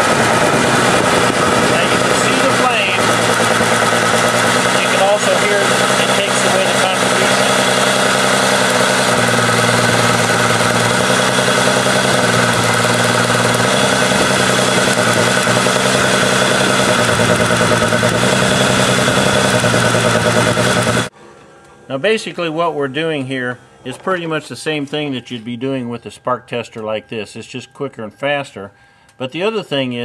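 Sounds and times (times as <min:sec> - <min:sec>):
engine running under load: 0:00.0 - 0:21.8
spark plug wire sparking: 0:01.8 - 0:21.1.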